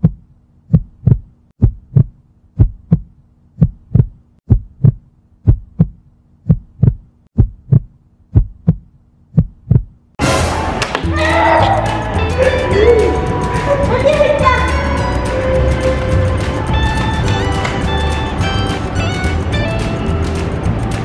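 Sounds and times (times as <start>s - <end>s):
heartbeat double thump: 0.0s - 10.0s.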